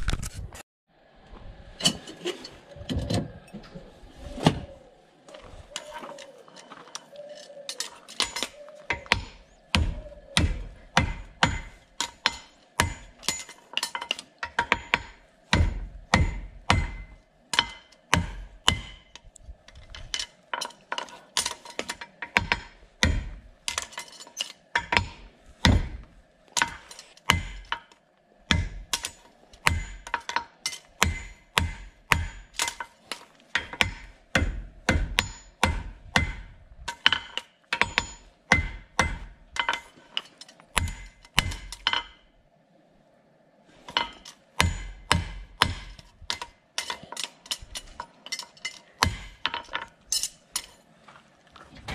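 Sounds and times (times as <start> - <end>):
hammer striking horseshoe on anvil: 7.7 - 19.2, 20.1 - 27.9, 28.5 - 42.2, 43.9 - 50.8.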